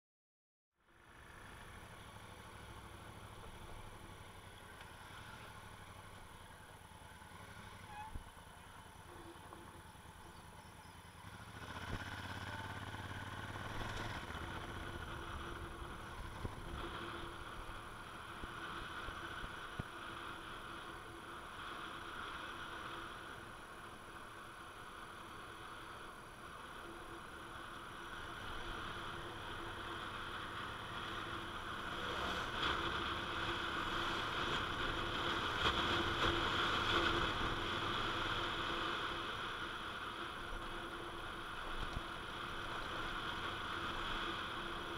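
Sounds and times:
road and wind noise: 0.7s - 44.9s
motorcycle engine: 0.8s - 44.9s.

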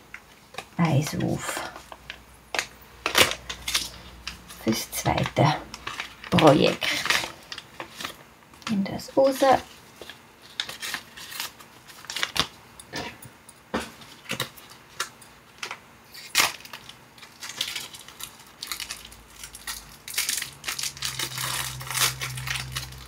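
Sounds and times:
foil and plastic crinkling: 0.4s - 13.2s, 13.8s - 23.0s.

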